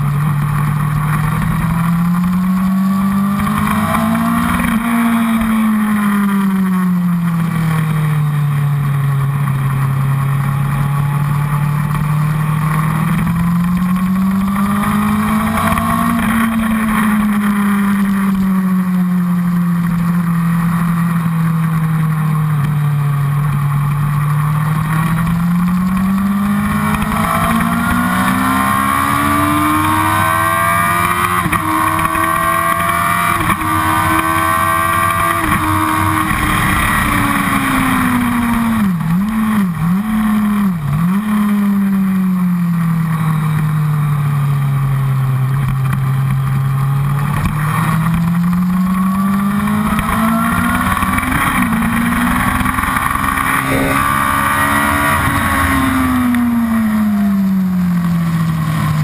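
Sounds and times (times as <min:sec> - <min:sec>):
motorcycle engine revving: 0:00.0 - 0:43.7, 0:44.4 - 0:59.0
wind rushing: 0:53.2 - 0:56.3.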